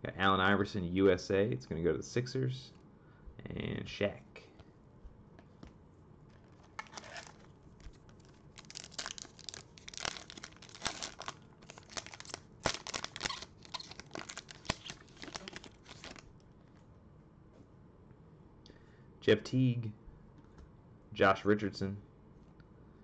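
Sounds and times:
foil wrapper crinkling and tearing: 0:06.4 - 0:16.3.

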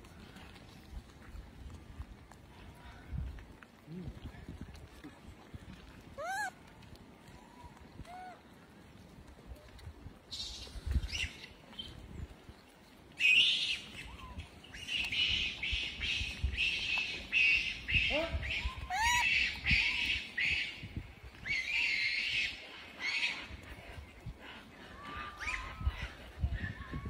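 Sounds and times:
animal squeaky chirping calls: 0:06.2 - 0:06.5, 0:17.9 - 0:20.0.

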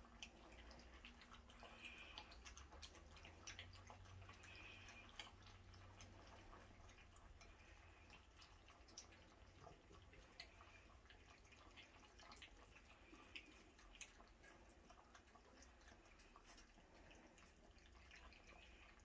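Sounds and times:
puppies lapping milk: 0:00.0 - 0:19.0.

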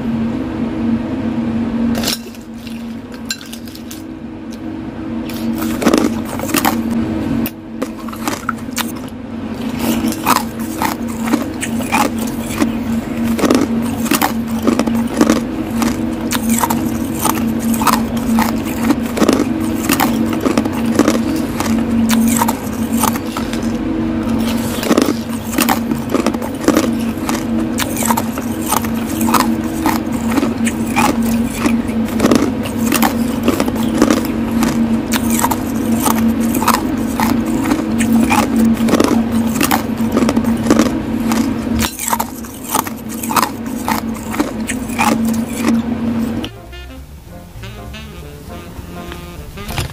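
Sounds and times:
steady low hum: 0:00.0 - 0:49.9
spoon scraping crushed ice: 0:07.8 - 0:45.8.

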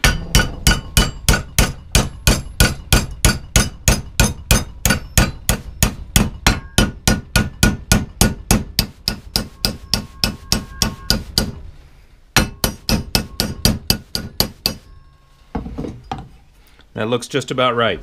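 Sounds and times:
hammer striking aluminium strip: 0:00.0 - 0:11.6, 0:12.4 - 0:14.9.

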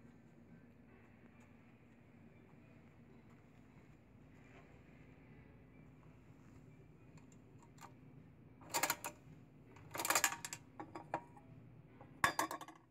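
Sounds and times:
vending machine crank clicking: 0:08.6 - 0:09.2, 0:09.8 - 0:11.0.

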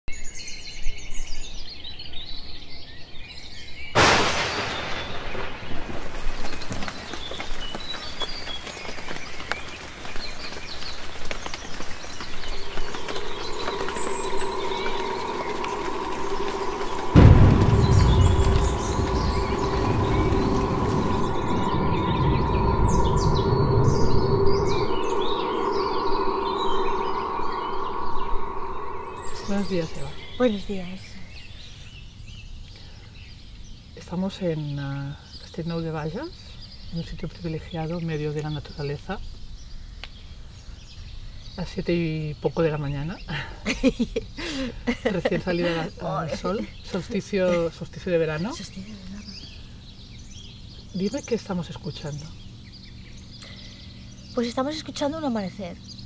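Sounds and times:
birds singing and chirping: 0:00.1 - 0:56.0
low rumble: 0:04.0 - 0:08.2, 0:12.0 - 0:31.7
loud rushing noise: 0:12.3 - 0:30.6.

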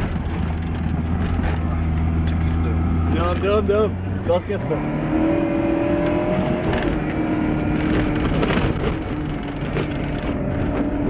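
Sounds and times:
vehicle knocks and rattles: 0:00.0 - 0:01.7, 0:07.6 - 0:11.0
vehicle engine running: 0:00.0 - 0:11.0.

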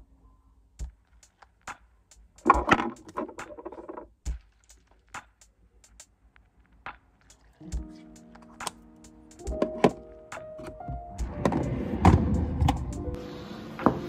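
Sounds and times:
plastic containers clicking and tapping: 0:02.4 - 0:04.1
knocks and scrapes: 0:02.4 - 0:05.1.

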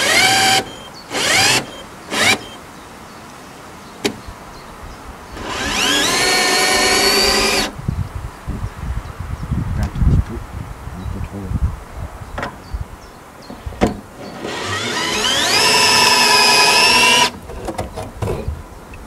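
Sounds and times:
cordless drill whine: 0:00.0 - 0:02.6, 0:05.4 - 0:07.8, 0:14.2 - 0:17.4.

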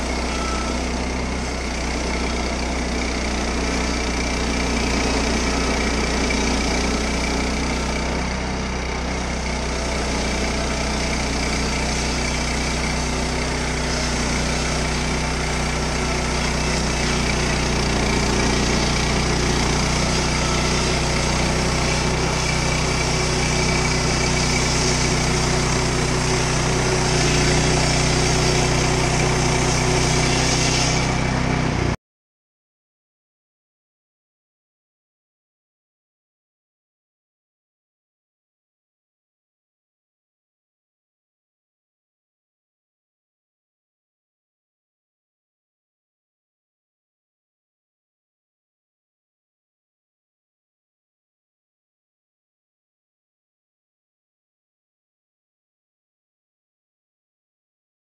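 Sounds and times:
band blade sawing log: 0:00.0 - 0:08.5, 0:09.1 - 0:32.0
gasoline engine running: 0:00.0 - 0:32.0.

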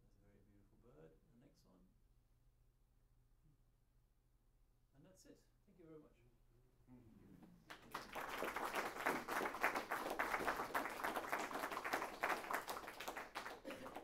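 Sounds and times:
audience applauding: 0:07.7 - 0:14.0.

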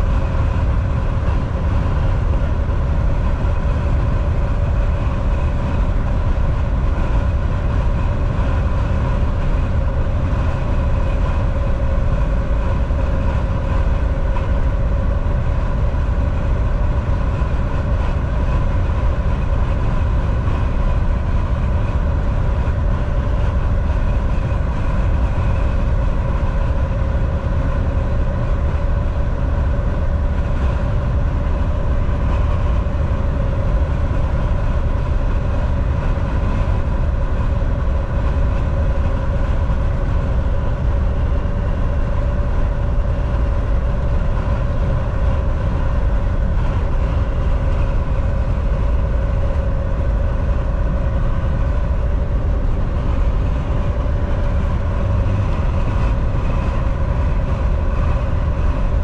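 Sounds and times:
steady whine: 0:00.0 - 0:59.0
truck engine and road rumble: 0:00.0 - 0:59.0.

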